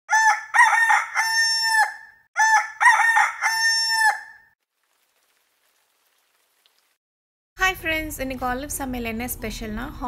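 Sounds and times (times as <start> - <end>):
rooster crowing: 0.1 - 4.6.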